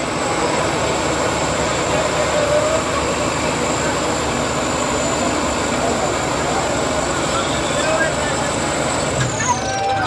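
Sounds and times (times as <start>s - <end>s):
tractor diesel engines straining: 0.0s - 10.0s.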